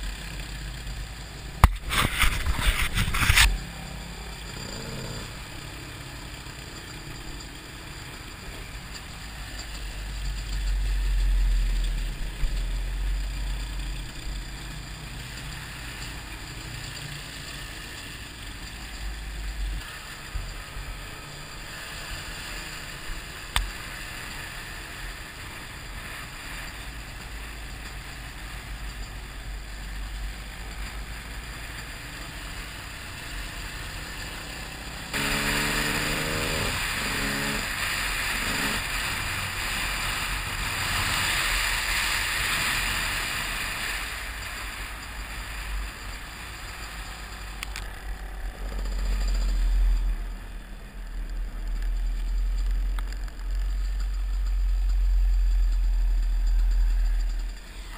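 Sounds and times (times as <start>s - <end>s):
motorcycle engine accelerating: 0.0s - 57.9s.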